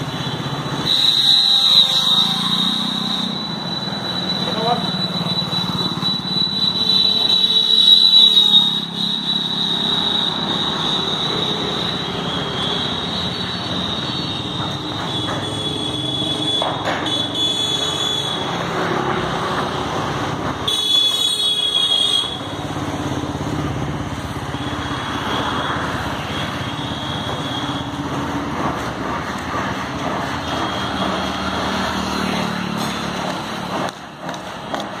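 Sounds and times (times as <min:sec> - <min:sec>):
street traffic with motorbikes: 0:00.0 - 0:35.0
shrill high tone: 0:00.9 - 0:14.6.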